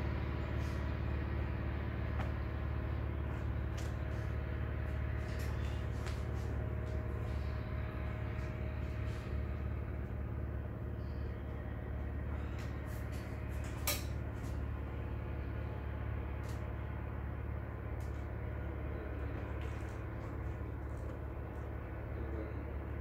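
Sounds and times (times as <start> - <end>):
low background rumble: 0.0 - 23.0.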